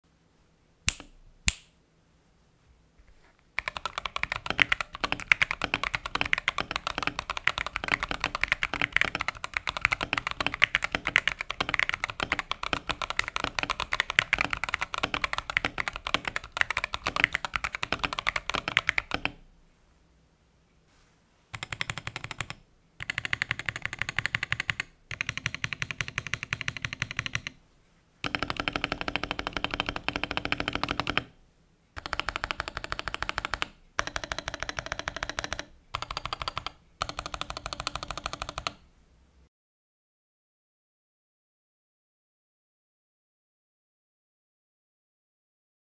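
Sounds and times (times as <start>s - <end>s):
sharp clicks: 0.9s - 1.7s
mechanical keyboard typing: 3.6s - 19.4s, 21.5s - 27.6s, 28.2s - 31.4s, 32.0s - 38.8s.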